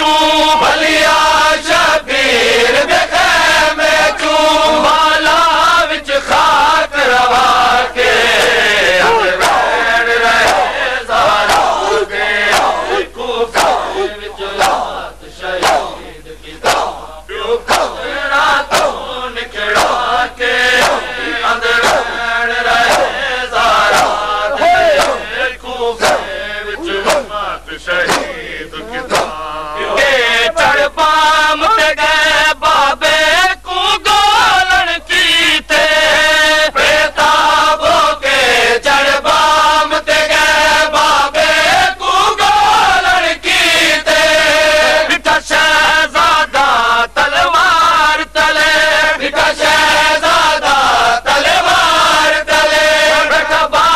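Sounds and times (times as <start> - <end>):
men chanting in unison: 0.0 - 53.9
chest-beating slaps: 10.4 - 13.0, 13.6 - 14.9, 15.6 - 16.0, 16.6 - 17.0, 17.7 - 18.0, 18.7 - 19.0, 19.7 - 20.1, 20.8 - 22.2, 22.8 - 23.2, 23.8 - 25.3, 26.0 - 27.4, 28.0 - 29.5.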